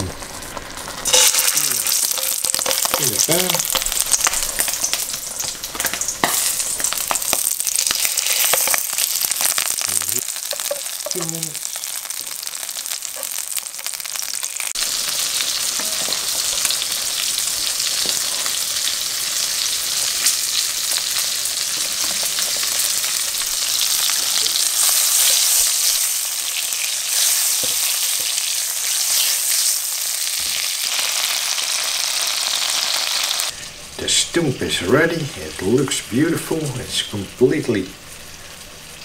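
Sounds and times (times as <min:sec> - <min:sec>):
sausages sizzling in a frying pan: 0:00.0 - 0:39.0
fat popping and crackling: 0:00.9 - 0:14.8.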